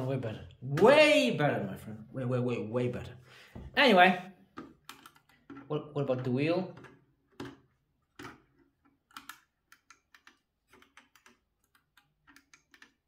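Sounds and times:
mouse clicking: 0:09.1 - 0:13.0.

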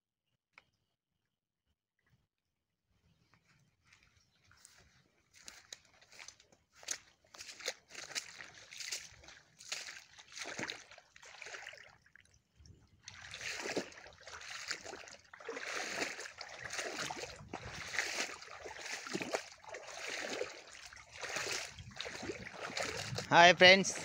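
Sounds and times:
floodwater running and splashing: 0:06.2 - 0:12.1, 0:13.0 - 0:23.8.

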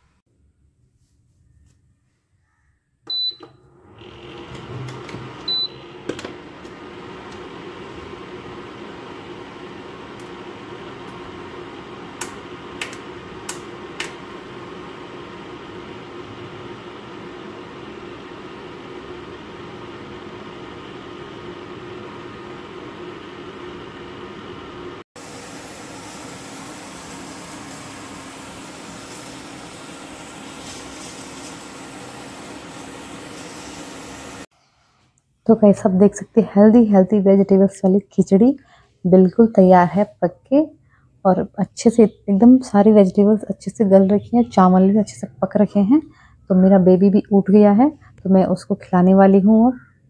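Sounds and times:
cooktop fan hum: 0:03.1 - 0:34.5.

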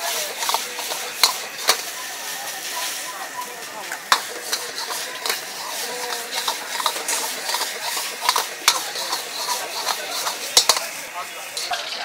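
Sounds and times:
food sizzling in hot oil: 0:00.0 - 0:12.0
metal ladle clanking on a wok: 0:00.3 - 0:01.8, 0:04.1 - 0:10.9.

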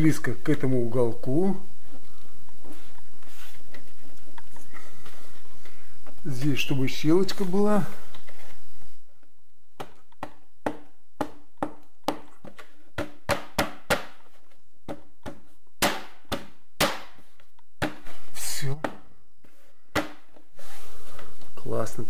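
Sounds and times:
taps and knocks on wall panel: 0:09.8 - 0:17.2, 0:19.9 - 0:20.4.

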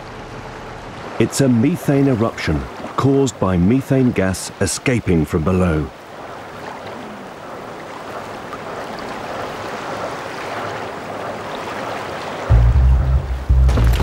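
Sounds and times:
deep music: 0:12.5 - 0:14.0.

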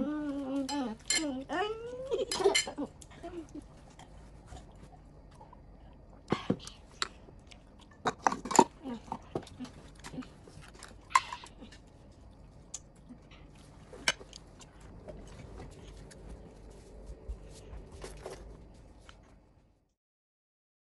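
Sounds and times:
small bowls knocking together: 0:02.2 - 0:03.1.

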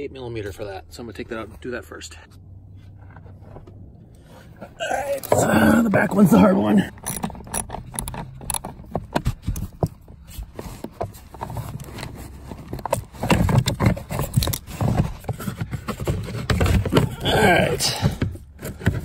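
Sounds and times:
ratchet clicking on screws: 0:06.9 - 0:08.6.

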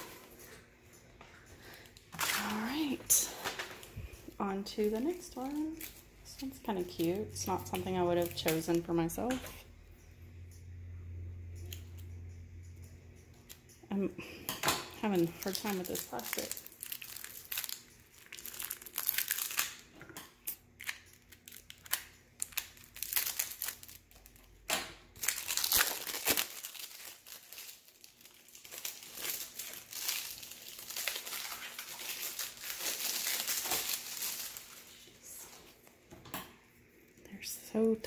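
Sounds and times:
plastic packaging crinkling: 0:01.6 - 0:08.8, 0:15.0 - 0:19.9, 0:20.8 - 0:35.8
plastic wrapping tearing: 0:02.1 - 0:03.2, 0:15.1 - 0:35.3.

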